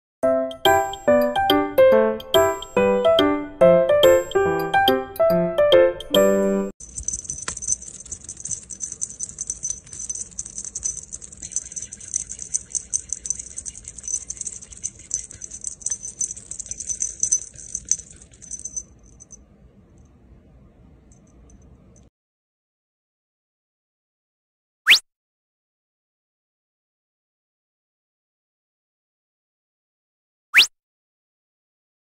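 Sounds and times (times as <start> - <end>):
small jingle bell shaken: 6.8 - 19.4.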